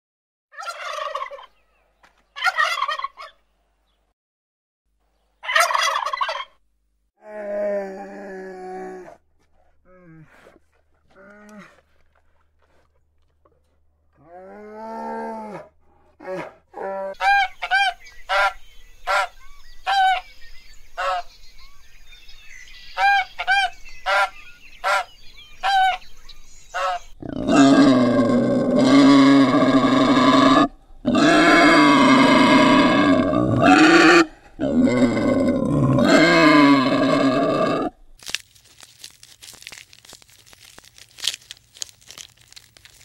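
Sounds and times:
animal calls: 0:26.8 - 0:37.9.

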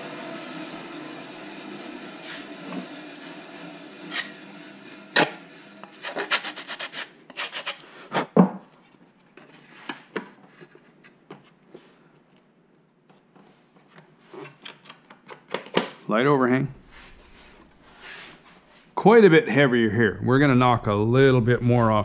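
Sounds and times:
machine whir: 0:00.0 - 0:07.7
sanding block rubbing fiberglass: 0:01.8 - 0:07.8.

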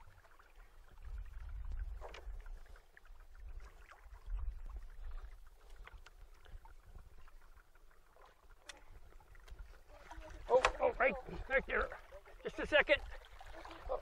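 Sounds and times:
water lapping around boat: 0:00.0 - 0:14.0
faint clicks: 0:08.5 - 0:09.6.

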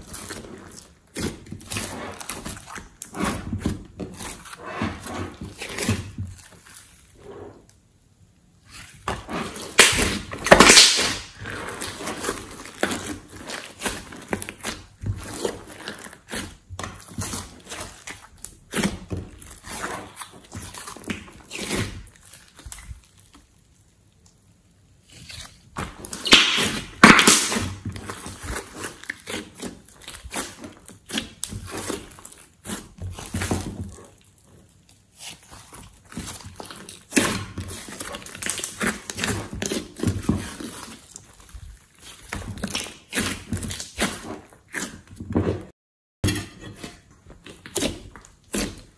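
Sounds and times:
slime squelching and popping: 0:00.0 - 0:07.2, 0:08.6 - 0:45.6, 0:46.2 - 0:48.9.

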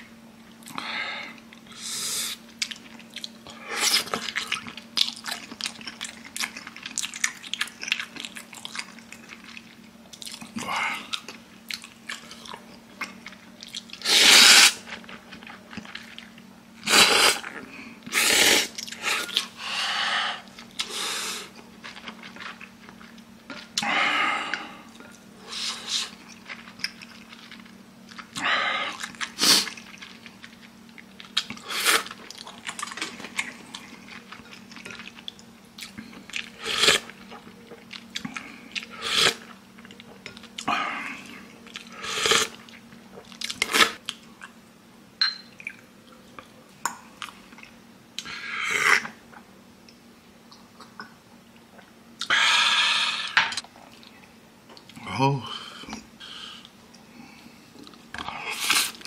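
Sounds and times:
man chewing and slurping noodles: 0:01.4 - 0:44.6.

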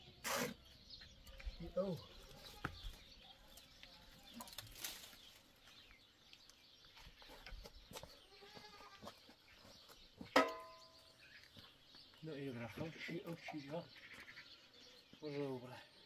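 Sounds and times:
broom sweeping dirt: 0:00.0 - 0:00.7
faint goat bleats: 0:08.2 - 0:09.1, 0:12.7 - 0:14.6.

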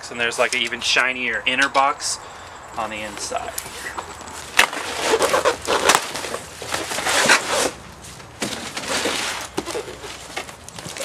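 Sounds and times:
cardboard scraping and rustling: 0:03.1 - 0:11.0.

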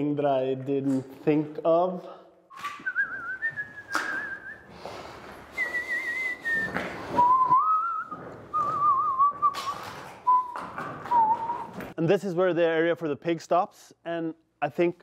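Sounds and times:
man whistling a slow tune: 0:02.5 - 0:04.7, 0:05.5 - 0:11.8.

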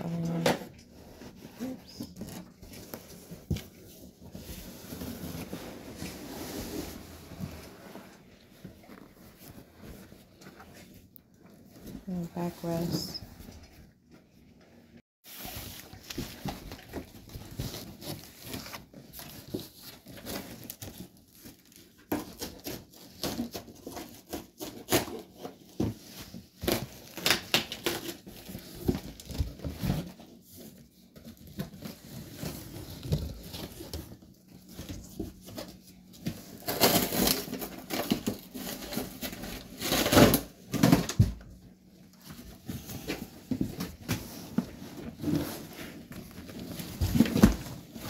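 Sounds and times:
packing wrap rustling: 0:15.3 - 0:41.2.

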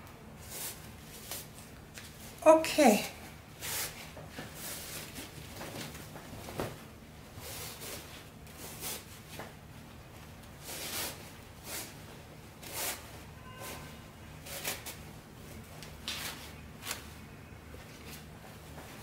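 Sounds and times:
fabric rustling: 0:03.6 - 0:17.2.

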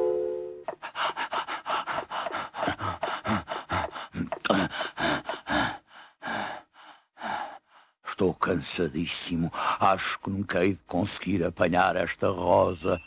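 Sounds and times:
person panting heavily: 0:00.7 - 0:08.0, 0:09.5 - 0:09.8.

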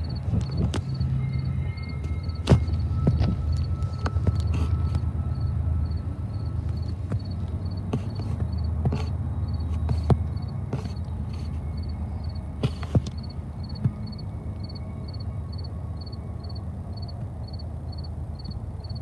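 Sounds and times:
insect chirping in pulses: 0:00.0 - 0:03.8, 0:13.2 - 0:19.0
low rumble: 0:00.0 - 0:18.7.

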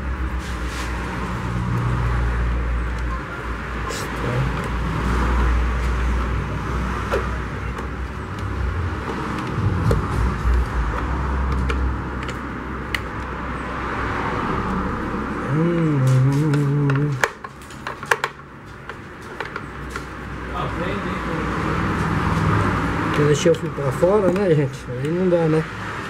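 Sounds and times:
steady low rumble with hiss: 0:07.6 - 0:13.5
short low hum: 0:08.4 - 0:12.1
clicks and taps on plastic: 0:16.5 - 0:20.1.

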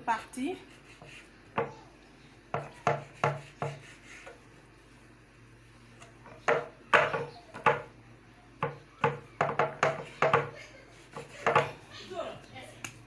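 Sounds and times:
knife tapping on wooden board: 0:06.4 - 0:07.9, 0:08.6 - 0:10.5, 0:11.2 - 0:11.7.

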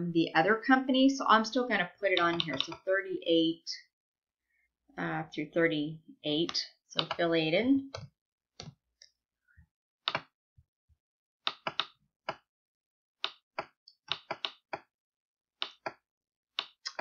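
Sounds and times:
computer keyboard and mouse clicks: 0:02.1 - 0:02.9, 0:06.4 - 0:07.3, 0:10.1 - 0:10.3, 0:11.5 - 0:12.4, 0:13.2 - 0:14.9, 0:15.6 - 0:16.0, 0:16.6 - 0:17.0.

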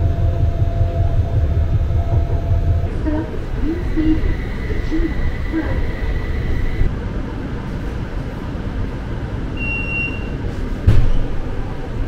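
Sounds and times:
high steady tone: 0:00.0 - 0:06.9
tram rumbling: 0:00.0 - 0:12.0
short high beep: 0:09.6 - 0:10.4
sharp thump: 0:10.8 - 0:11.4.

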